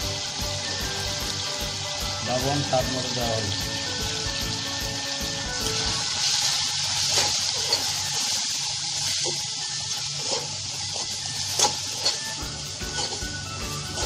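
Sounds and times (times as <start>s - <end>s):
masala sizzling in hot oil: 0.0s - 14.0s
spatula scraping and tapping pan: 7.1s - 8.0s, 10.2s - 14.0s.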